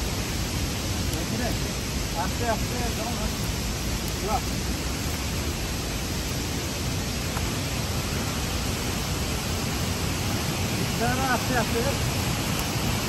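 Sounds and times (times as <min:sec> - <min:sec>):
falling water rushing: 0:00.0 - 0:13.0.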